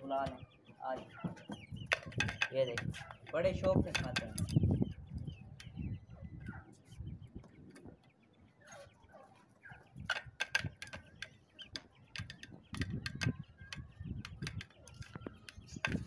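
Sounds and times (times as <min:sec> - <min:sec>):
beaks clicking on a plate: 0:01.8 - 0:04.6, 0:10.1 - 0:16.0.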